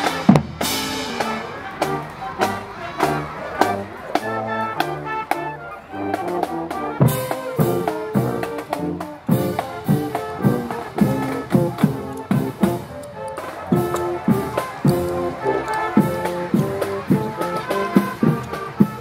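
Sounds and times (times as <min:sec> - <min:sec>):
bass drums beating: 0:00.0 - 0:01.4
marching band playing: 0:00.0 - 0:19.0.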